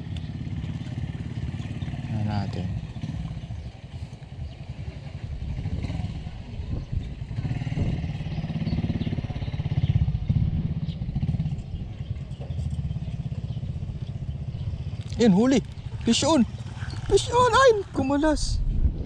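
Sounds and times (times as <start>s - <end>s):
small engine running: 7.0s - 18.4s.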